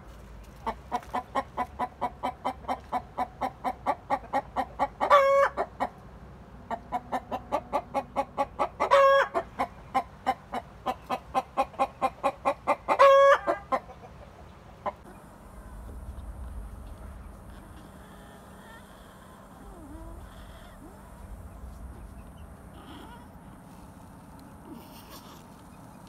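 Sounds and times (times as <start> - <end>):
hen cackling: 0.6 - 5.9, 6.7 - 26.0.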